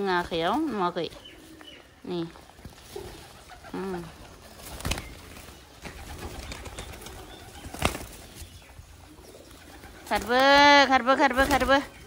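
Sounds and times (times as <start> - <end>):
pigeons flapping wings: 2.5 - 8.5, 9.4 - 11.9.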